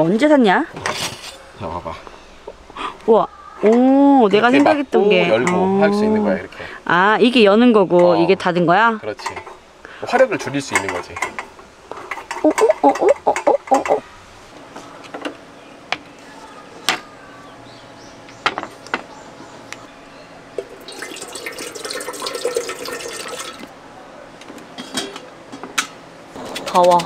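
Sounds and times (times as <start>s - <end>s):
liquid being poured: 20.6s - 23.7s.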